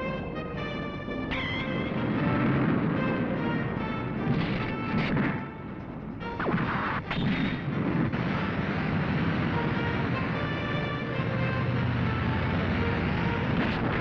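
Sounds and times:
action soundtrack music: 0.0s - 14.0s
blasts and crashes: 4.2s - 5.6s, 6.3s - 10.9s, 13.4s - 14.0s.

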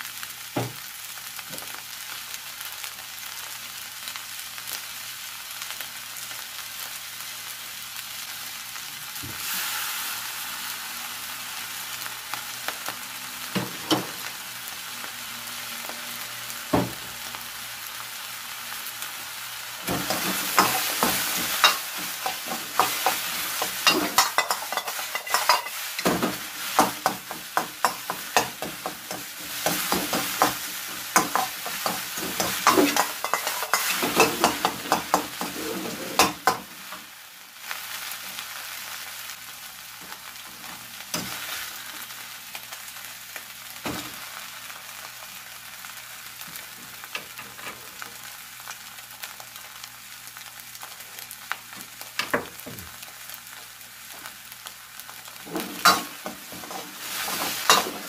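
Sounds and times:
fried rice sizzling in a wok: 0.0s - 58.0s
ladle scraping and clacking on wok: 20.0s - 36.6s, 55.4s - 58.0s.

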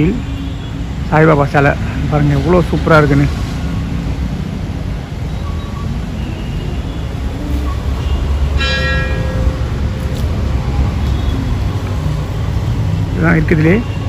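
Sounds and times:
street traffic rumble: 0.0s - 14.0s
bright ringing tone: 7.7s - 9.9s.

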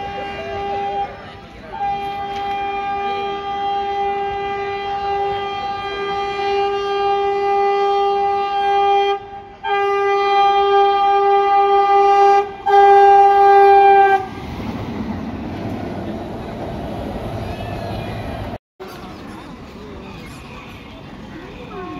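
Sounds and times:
train horn blasts: 0.0s - 14.3s.

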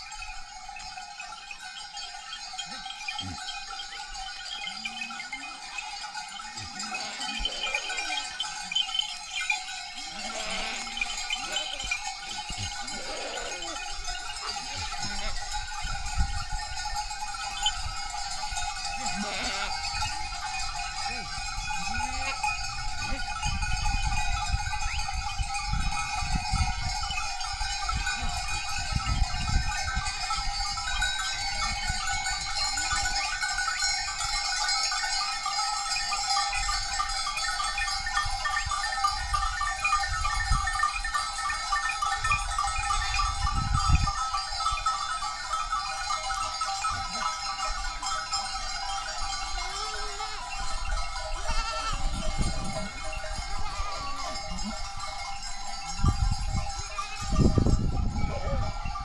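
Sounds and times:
livestock bells jangling: 0.0s - 59.0s
goats and sheep bleating: 1.6s - 16.6s, 17.5s - 23.9s, 46.2s - 55.5s, 58.2s - 58.8s.

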